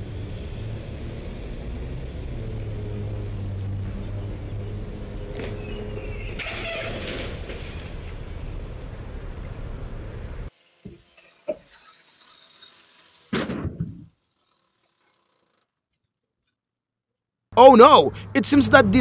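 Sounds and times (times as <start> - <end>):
street traffic: 0.0 - 10.7, 17.6 - 19.0.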